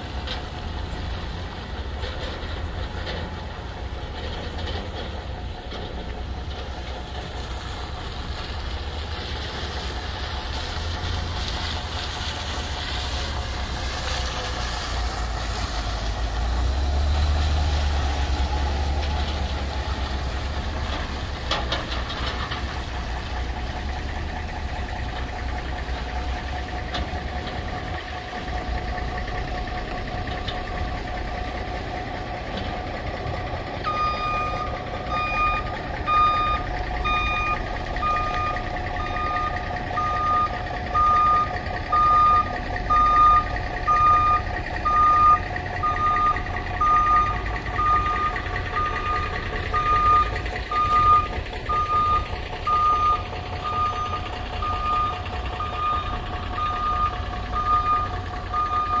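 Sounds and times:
truck engine running: 0.0s - 59.0s
truck backup alarm beeping: 23.2s - 59.0s.

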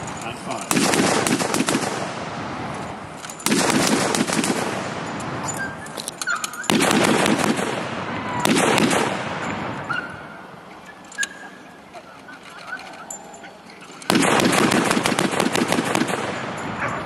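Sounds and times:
gatling gun firing bursts: 0.7s - 2.2s, 3.4s - 4.9s, 6.7s - 7.9s, 8.5s - 9.2s, 14.1s - 16.6s.

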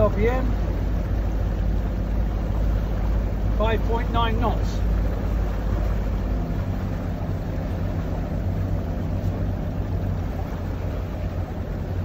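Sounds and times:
boat engine low hum: 0.0s - 12.0s
hiss of wind and water: 0.0s - 12.0s.

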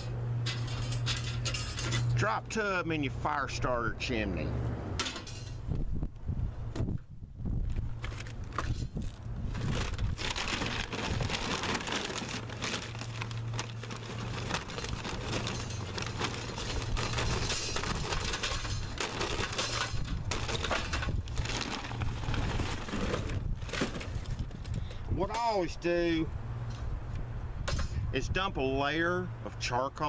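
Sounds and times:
charcoal lumps clattering into metal: 0.4s - 2.4s, 9.7s - 24.4s
paper bag crinkling: 7.6s - 24.8s.

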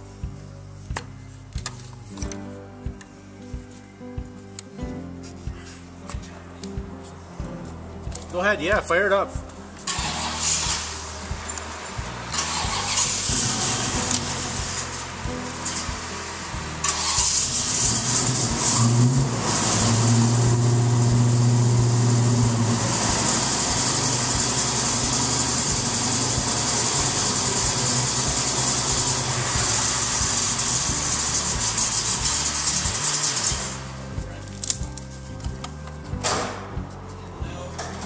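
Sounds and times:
car engine starting and idling: 9.8s - 35.2s.

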